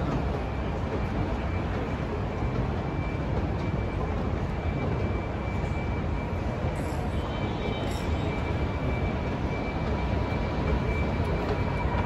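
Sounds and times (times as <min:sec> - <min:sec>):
airport terminal rumble: 0:00.0 - 0:12.0.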